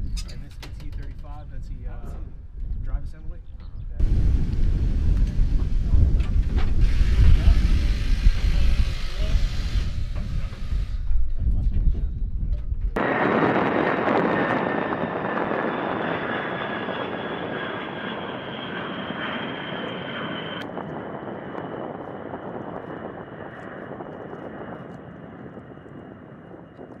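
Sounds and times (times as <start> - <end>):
jet bomber flying past: 13.0 - 27.0.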